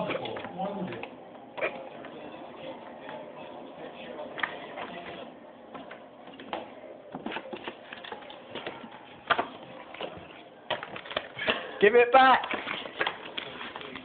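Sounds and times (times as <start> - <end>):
paper card rustling: 12.4 - 14.0.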